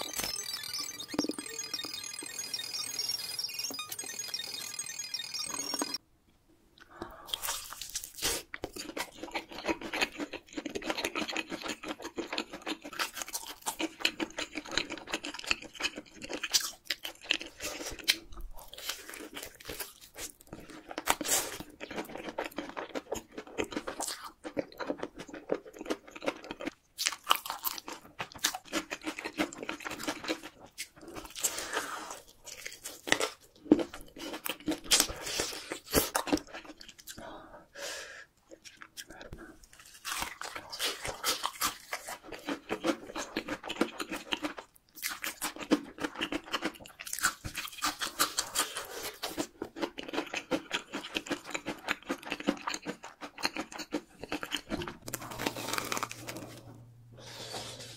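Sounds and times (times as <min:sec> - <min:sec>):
crunching of crispy fried chicken: 0:07.4 - 0:37.1, 0:38.6 - 0:56.6.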